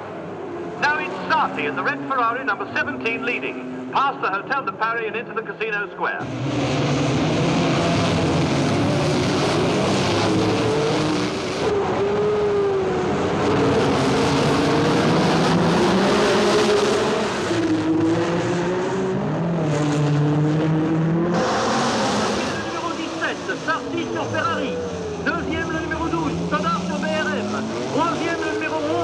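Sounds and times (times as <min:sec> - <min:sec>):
racing car engines at high revs: 0:00.0 - 0:05.4, 0:06.1 - 0:29.0.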